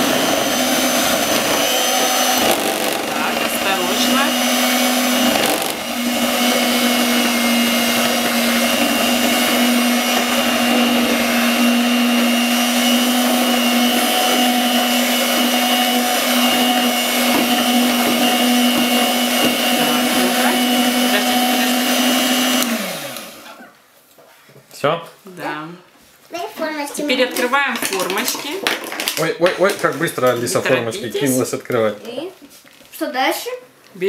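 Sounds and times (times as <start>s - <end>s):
electric hand mixer whisking: 0.0s - 23.6s
mixer motor winding down: 0.0s - 23.6s.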